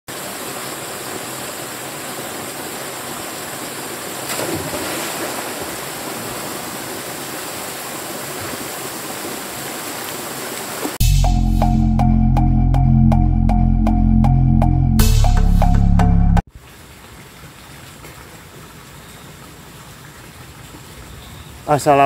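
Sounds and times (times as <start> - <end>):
waterfall pouring into pool: 0.1 - 11.0
swimmer diving splash: 4.2 - 7.7.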